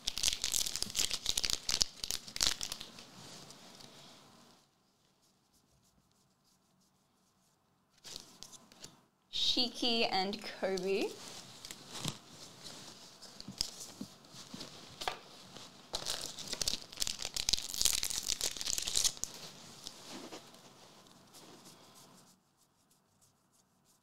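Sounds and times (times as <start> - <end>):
wrapper crackling and crinkling: 0.0 - 3.6, 10.8 - 22.2.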